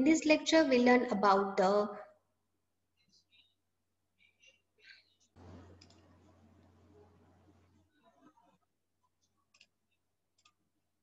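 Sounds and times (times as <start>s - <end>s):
low electrical hum and hiss: 5.4s - 7.9s.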